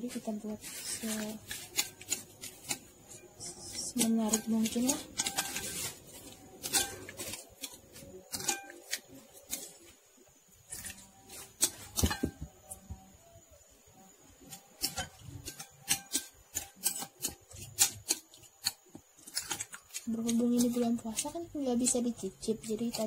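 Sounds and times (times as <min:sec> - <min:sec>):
faint background music: 0:00.0 - 0:23.0
utensil scraping against bowl: 0:00.5 - 0:09.9.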